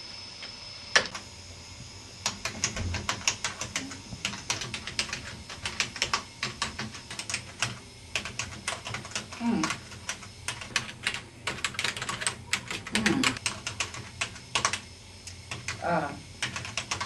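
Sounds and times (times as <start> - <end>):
typing on computer keyboard: 2.2 - 14.8, 15.5 - 15.8, 16.4 - 17.0.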